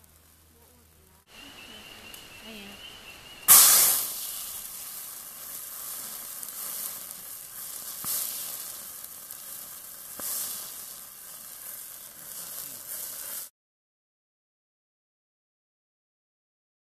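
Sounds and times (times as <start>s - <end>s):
fire cracking: 0.0s - 13.5s
wax fire sizzling hiss: 0.0s - 13.5s.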